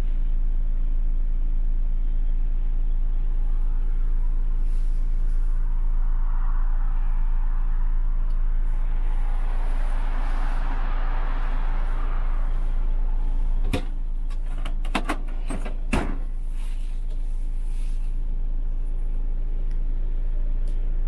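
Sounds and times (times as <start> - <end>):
sharp clicks and knocks: 13.6 - 16.2.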